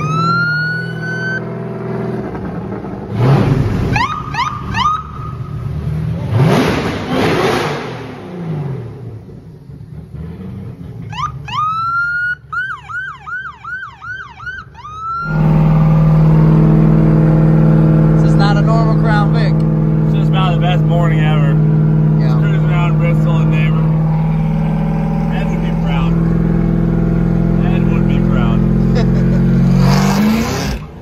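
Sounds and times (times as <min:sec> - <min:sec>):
police siren: 0:00.0 - 0:01.5, 0:03.9 - 0:05.6, 0:11.1 - 0:16.4
car engine revving: 0:00.0 - 0:11.5, 0:15.2 - 0:31.0.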